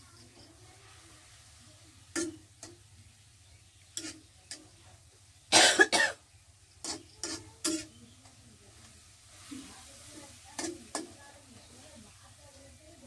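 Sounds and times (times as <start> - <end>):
metal spatula scraping wok: 0.1 - 3.1, 3.8 - 5.1, 6.8 - 12.8
person coughing: 5.5 - 6.2.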